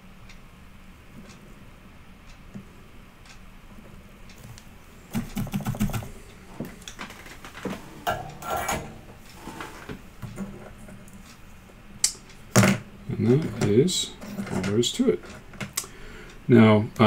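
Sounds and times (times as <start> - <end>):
clicking and clattering of tools: 6.8 - 11.4, 12.5 - 15.9.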